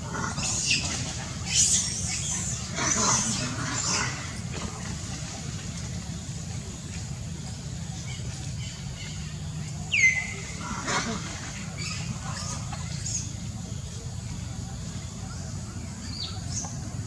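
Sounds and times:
steady low hum: 0.0 - 17.0
macaques screechy high calls: 0.1 - 4.4, 9.9 - 13.3.

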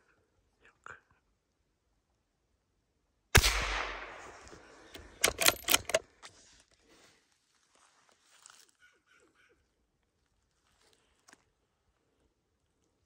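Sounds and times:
gunshot with echo: 3.4 - 4.6
sharp clicks: 3.4 - 6.0.

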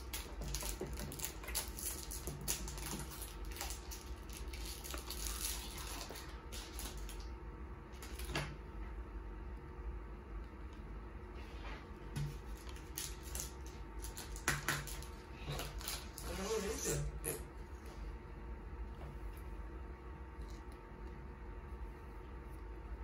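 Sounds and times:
trading cards rustling and flicking: 12.2 - 16.3.

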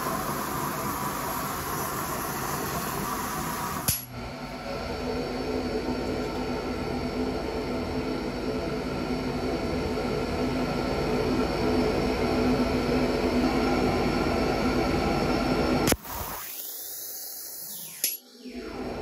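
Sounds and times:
low machine hum: 0.0 - 16.3.

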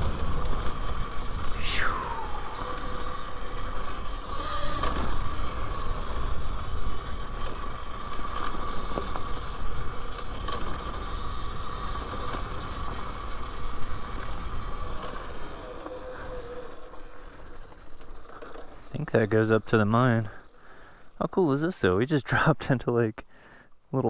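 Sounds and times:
electric motor whine: 0.0 - 18.8
low rumble: 1.4 - 3.6.

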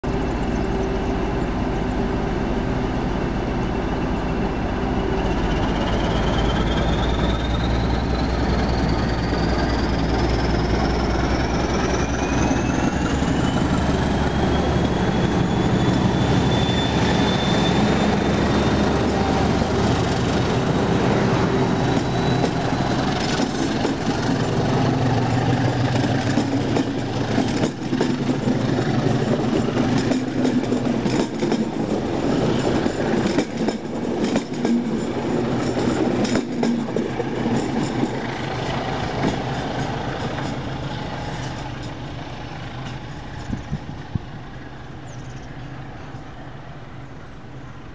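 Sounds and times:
diesel locomotive engine under load: 0.0 - 47.9
train wheels clicking over rail joints: 17.0 - 44.1.

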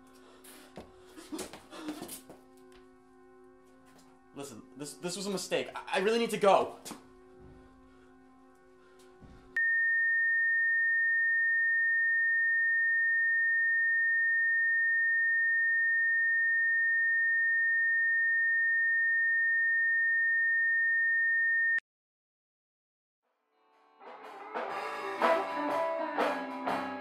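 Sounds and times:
high-pitched sine tone: 9.6 - 21.8.

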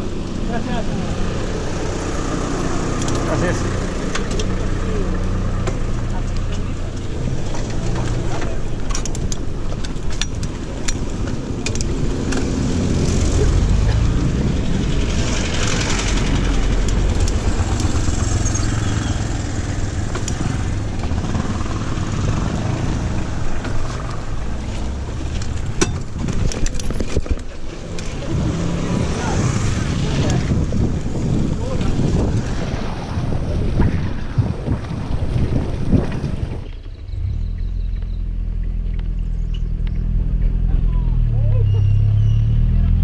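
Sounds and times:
sharp clicks and rattles: 5.6 - 22.4, 23.0 - 28.3
wind rushing over microphone: 6.8 - 37.5.

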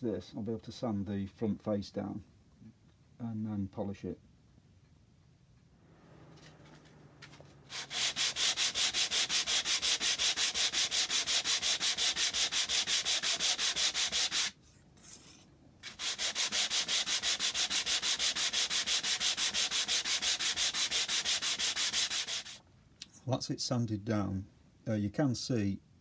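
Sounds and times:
sandpaper rubbing on wood: 7.7 - 22.6.

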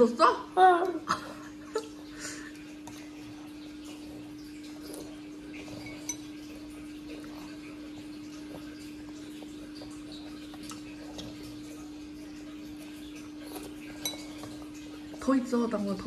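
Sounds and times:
dishes and cutlery clinking: 5.5 - 7.4, 13.5 - 14.9.

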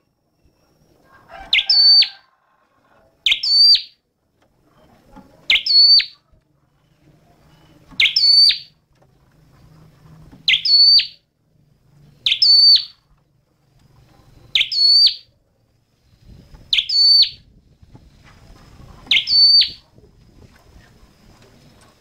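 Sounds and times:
bird call: 1.3 - 2.2, 3.2 - 4.0, 5.5 - 6.2, 7.5 - 8.8, 10.4 - 11.2, 12.2 - 13.1, 14.2 - 15.3, 16.7 - 17.4, 19.1 - 19.8.

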